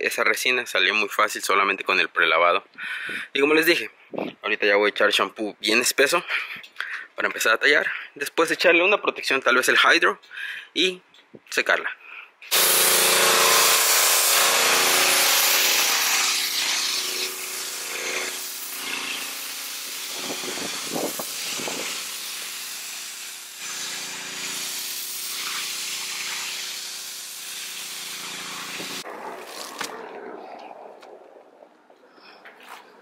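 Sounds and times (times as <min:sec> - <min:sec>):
pressure washer spray hissing: 0:12.5 - 0:29.0.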